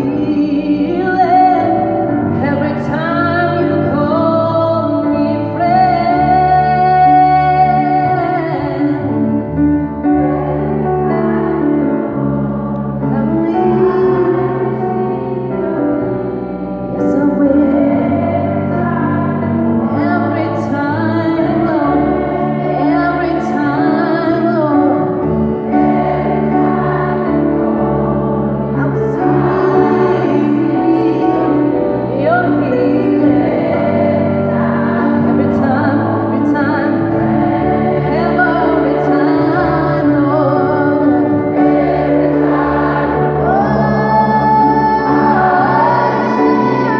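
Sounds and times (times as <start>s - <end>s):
woman singing into a microphone: 0.0s - 9.4s, 13.0s - 15.0s, 17.0s - 25.3s, 28.8s - 33.7s, 34.5s - 37.4s, 38.0s - 41.8s, 43.4s - 46.9s
choir singing: 0.0s - 46.9s
keyboard accompaniment: 0.0s - 46.9s.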